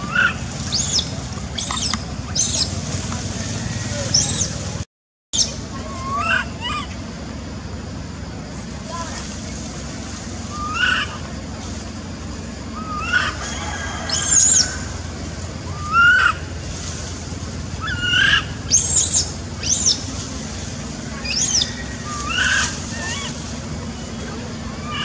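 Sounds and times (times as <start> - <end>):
baby monkey cries: 0.0 - 2.7, 5.4 - 7.0, 10.5 - 11.2, 12.7 - 13.4, 14.1 - 15.0, 15.7 - 16.5, 17.8 - 20.0, 21.2 - 23.4, 24.7 - 25.0
high chirps: 0.0 - 2.8, 17.8 - 20.1
low background rumble: 0.0 - 25.0.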